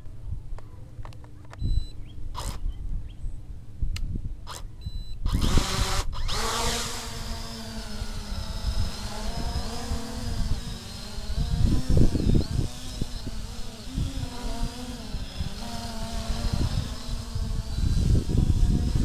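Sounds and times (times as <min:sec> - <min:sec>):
wind rumble on microphone: 0:00.0 - 0:19.0
drone propellers buzzing: 0:04.5 - 0:19.0.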